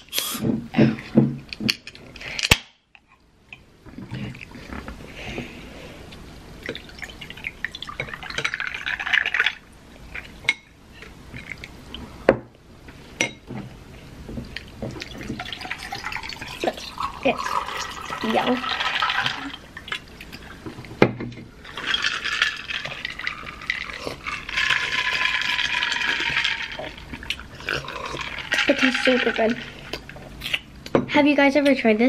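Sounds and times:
drink pouring over ice: 0:06.7 - 0:09.6, 0:15.0 - 0:20.0, 0:21.6 - 0:30.0.

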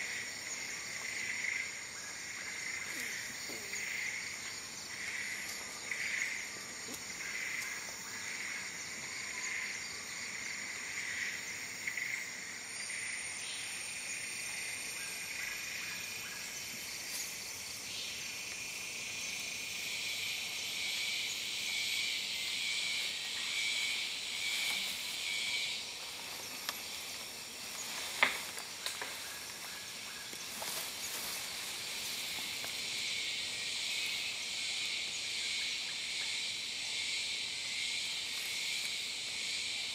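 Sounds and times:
insects shrilling: 0:15.2 - 0:39.7.

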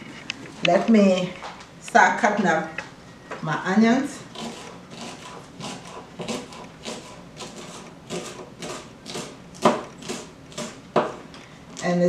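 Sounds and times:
knife chopping on cutting board: 0:04.3 - 0:11.2.

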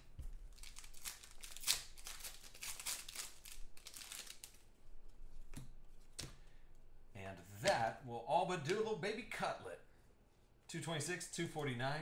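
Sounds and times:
foil wrappers crinkling: 0:00.5 - 0:04.7.

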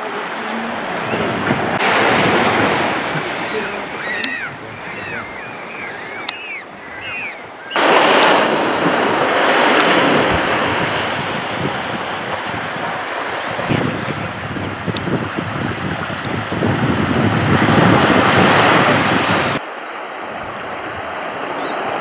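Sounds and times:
waves breaking on rocks: 0:00.0 - 0:22.0
short high chirping calls: 0:03.6 - 0:07.8.

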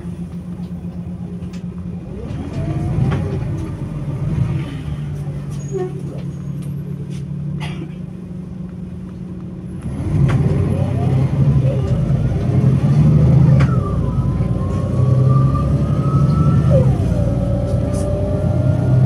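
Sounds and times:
bus engine running and revving: 0:00.0 - 0:19.0.

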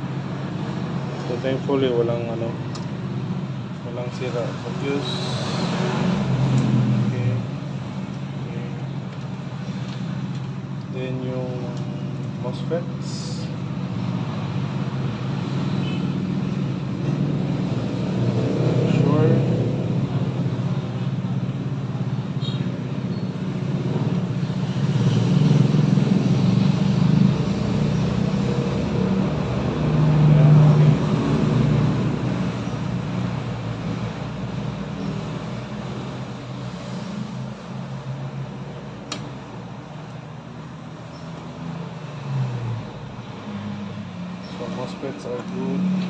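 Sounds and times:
sharp click: 0:39.1 - 0:39.3.

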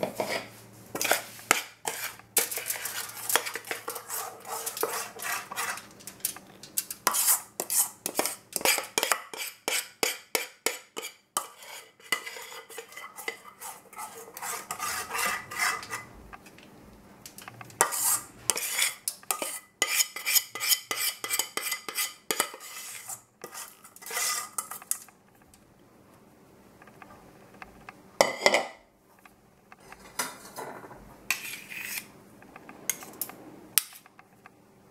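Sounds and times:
metal spoon scraping saucepan: 0:00.1 - 0:16.1, 0:17.8 - 0:25.1, 0:29.8 - 0:32.1.

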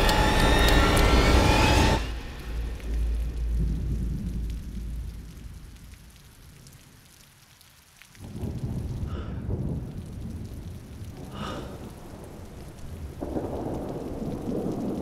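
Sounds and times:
deep low rumble: 0:00.0 - 0:06.5.

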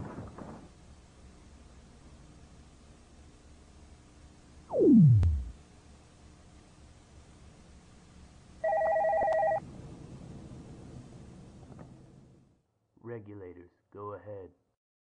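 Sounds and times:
telephone ringing: 0:08.6 - 0:09.6.

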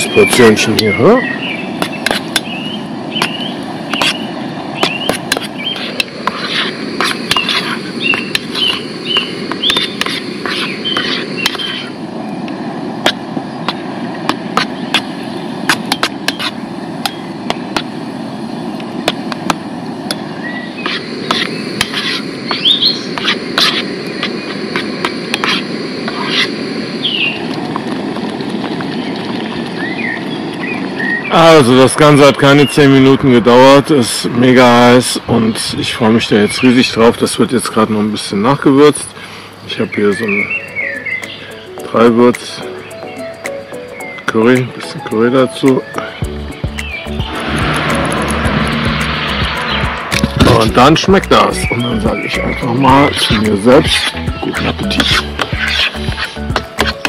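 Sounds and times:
birds chirping: 0:00.0 - 0:57.0
metal spoon stirring in pot: 0:15.7 - 0:16.6, 0:20.8 - 0:22.6, 0:54.0 - 0:57.0.

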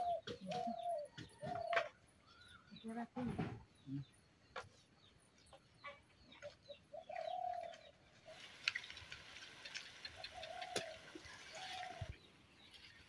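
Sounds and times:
bird cooing: 0:00.0 - 0:01.9, 0:06.9 - 0:07.9, 0:10.0 - 0:12.1
birds chirping: 0:00.0 - 0:13.0.

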